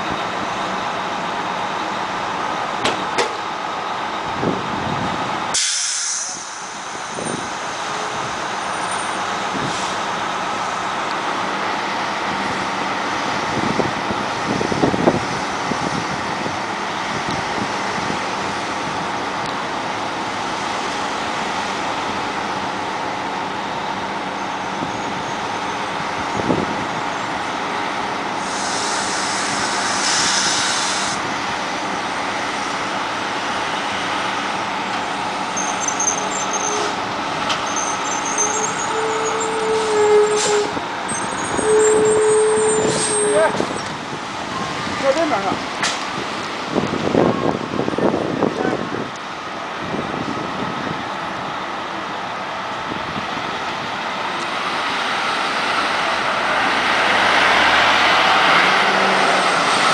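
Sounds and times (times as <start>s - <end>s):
diesel bus engines idling: 0.0s - 59.9s
air brake hiss: 5.5s - 7.4s, 9.6s - 10.1s, 28.4s - 31.2s, 39.8s - 40.7s
burst of air hiss: 5.6s - 7.2s, 28.4s - 31.2s.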